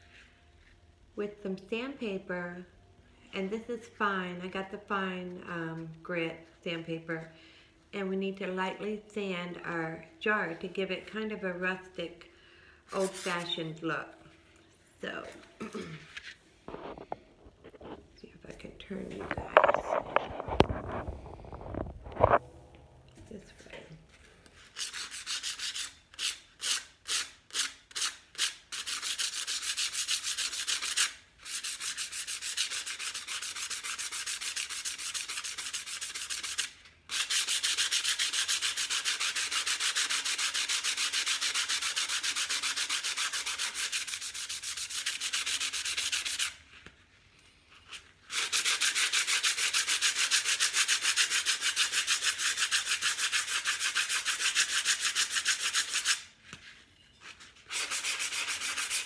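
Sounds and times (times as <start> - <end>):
sandpaper scratching: 24.6 - 46.6, 47.9 - 56.3, 57.2 - 59.0.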